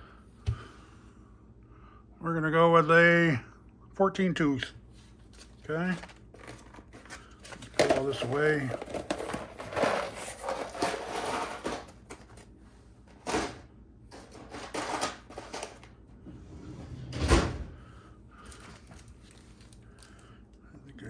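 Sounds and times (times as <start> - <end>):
parts rustling and clattering: 5.0 - 16.0.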